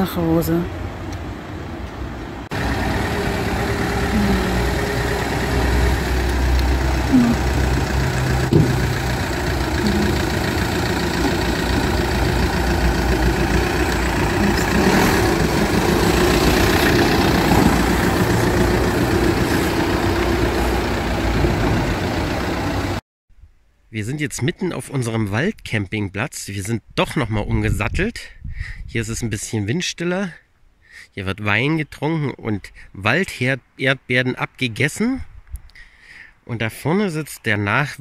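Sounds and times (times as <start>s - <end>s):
van engine rumbling: 0.0s - 23.0s.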